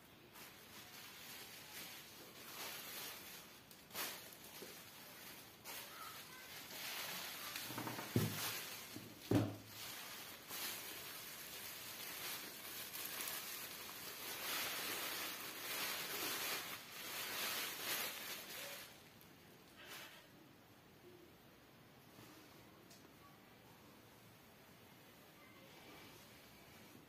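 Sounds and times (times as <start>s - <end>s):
bubble wrap crinkling: 0.0s - 20.3s.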